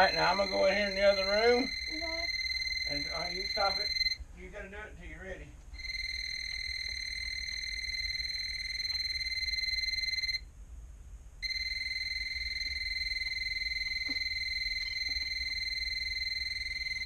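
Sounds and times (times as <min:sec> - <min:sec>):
high-pitched tester beep: 0:00.0 - 0:04.2, 0:05.8 - 0:10.4, 0:11.4 - 0:17.0.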